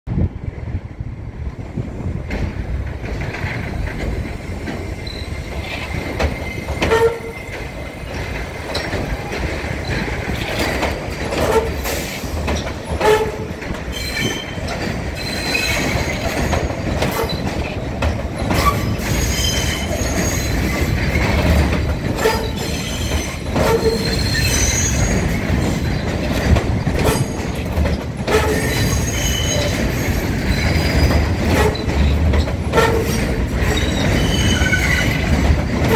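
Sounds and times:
subway train rumbling past: 0:00.1 - 0:35.9
wheel squeal: 0:04.6 - 0:07.9, 0:13.9 - 0:17.7, 0:18.4 - 0:21.3, 0:22.2 - 0:26.0, 0:28.3 - 0:35.9.

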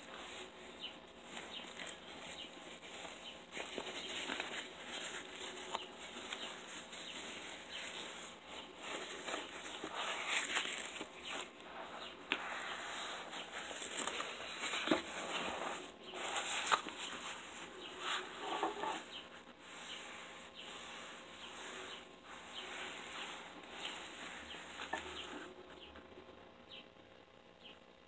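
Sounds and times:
neoprene brace rustling and flapping: 0:00.0 - 0:20.0.

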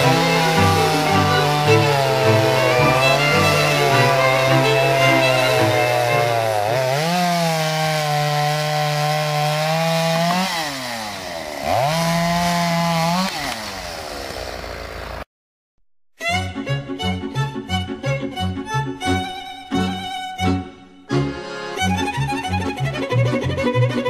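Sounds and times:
chainsaw running at high revs: 0:00.0 - 0:15.2.

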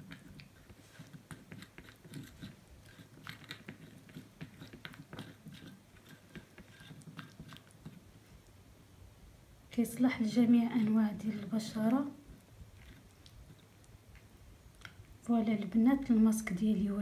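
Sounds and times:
spoon scraping ceramic bowl: 0:00.0 - 0:08.0.

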